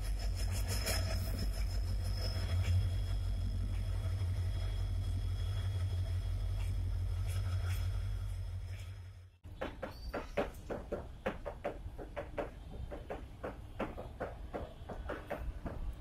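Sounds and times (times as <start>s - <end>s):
sharp irregular clicks and knocks: 9.5s - 16.0s.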